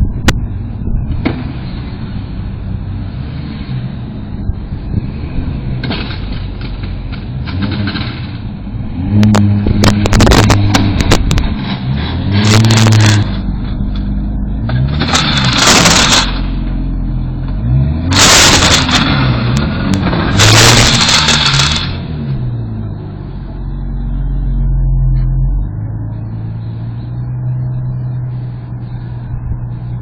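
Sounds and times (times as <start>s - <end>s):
car engine revving: 0.0s - 30.0s
harsh scraping and grinding: 5.8s - 22.6s.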